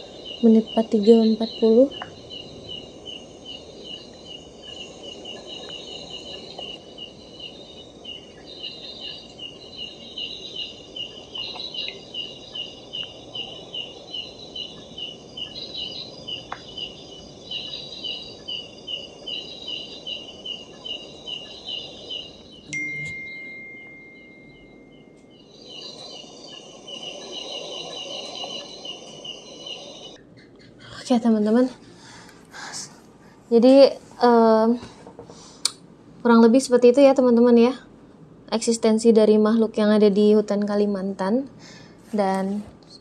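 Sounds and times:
higher pulsing insect chirps: 0.0s - 30.2s
insect chirping evenly: 0.0s - 32.9s
low hiss: 0.0s - 43.0s.

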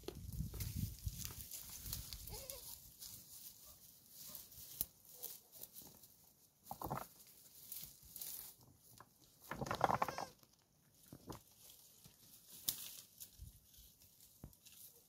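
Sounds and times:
hooves on rocks and brush: 0.0s - 10.3s
young goats bleating: 2.2s - 2.8s, 9.7s - 10.4s.

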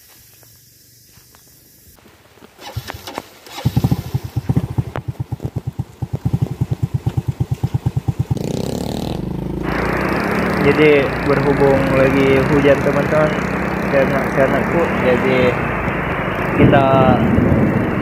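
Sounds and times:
motorcycle engine starting and idling: 2.6s - 18.0s.

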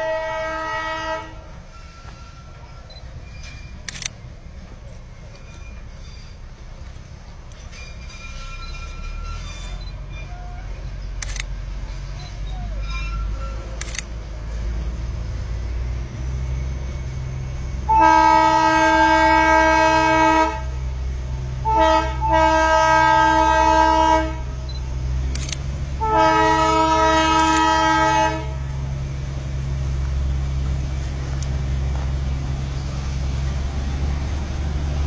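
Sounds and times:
train horn blasts: 0.0s - 3.5s, 17.8s - 20.8s, 21.6s - 24.8s, 26.0s - 28.7s
low engine rumble: 0.0s - 35.0s.

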